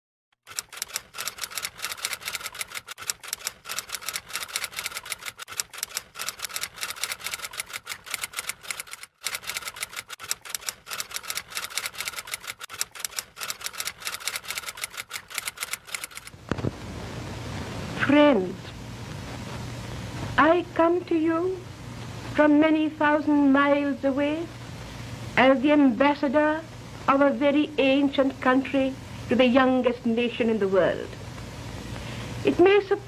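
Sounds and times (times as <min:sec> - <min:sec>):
typewriter keystroke clicks: 0:00.5 - 0:16.3.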